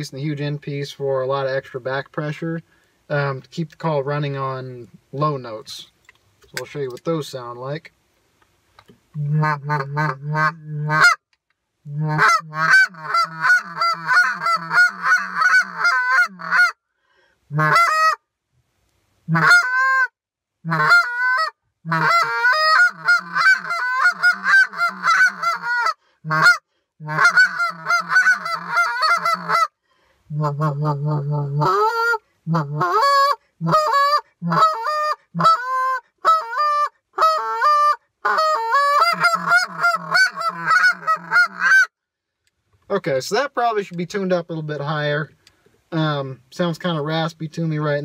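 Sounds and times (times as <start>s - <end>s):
goose call honks and clucks: 9.2s - 11.2s, 11.9s - 16.8s, 17.5s - 18.2s, 19.3s - 29.7s, 30.3s - 41.9s.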